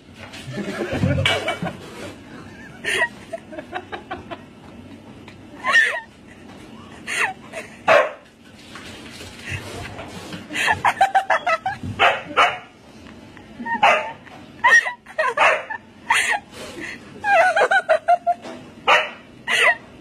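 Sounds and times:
person laughing: 0.5s - 4.5s, 5.5s - 7.9s, 10.5s - 11.8s, 13.6s - 18.5s, 19.5s - 19.8s
dogs yelping and whining: 13.6s - 16.4s.

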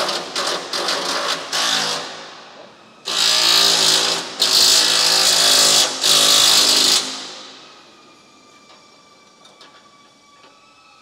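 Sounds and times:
power tool hissing whir: 1.5s - 9.8s.

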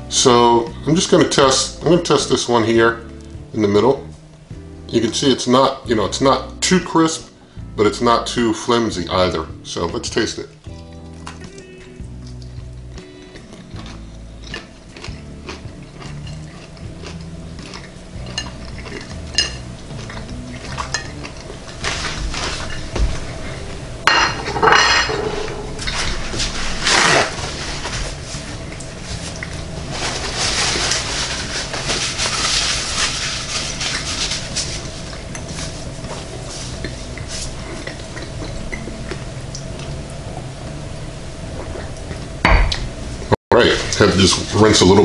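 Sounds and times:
crunchy chewing: 10.7s - 23.7s, 25.8s - 39.9s
plate clinking: 18.2s - 20.2s, 24.1s - 27.3s
paper towel rustling: 21.6s - 23.6s, 25.1s - 37.7s, 43.7s - 45.0s.

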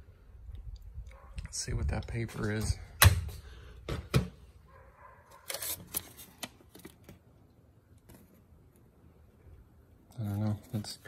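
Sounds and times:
paper label crinkling: 5.3s - 7.2s.

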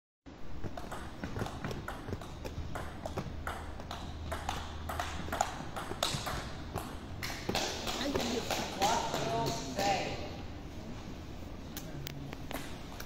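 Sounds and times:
table tennis ball clicking: 0.7s - 9.6s.

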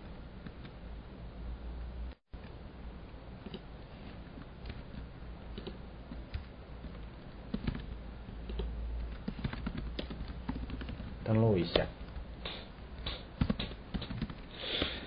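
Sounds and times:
low steady hum: 0.0s - 15.0s
computer keyboard keys clicking: 4.6s - 7.9s, 8.5s - 14.5s.

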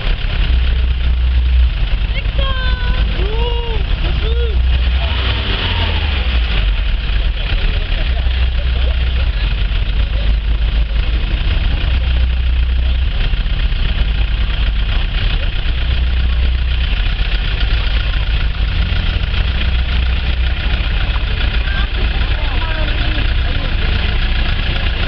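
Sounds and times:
car engine low rumble: 0.0s - 25.0s.

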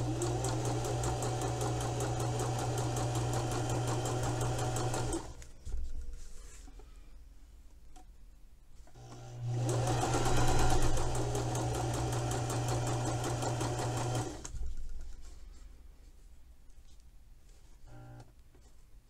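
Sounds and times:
sewing machine stitching: 0.0s - 6.2s, 9.0s - 14.8s.

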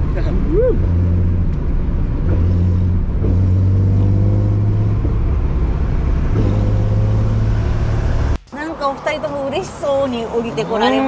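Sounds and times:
car engine running: 0.0s - 8.5s.

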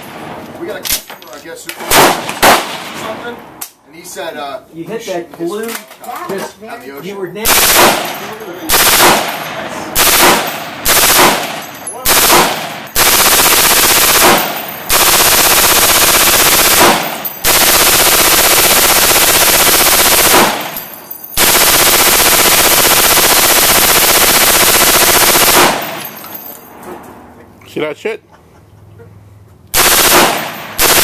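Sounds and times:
machine gun firing bursts: 1.9s - 2.9s, 7.5s - 9.4s, 10.0s - 26.2s, 29.7s - 31.0s.

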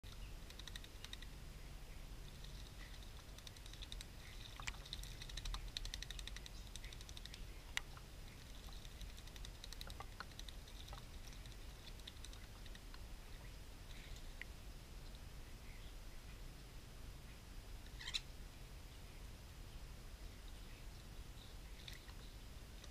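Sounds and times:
birds splashing in water: 2.4s - 12.9s.

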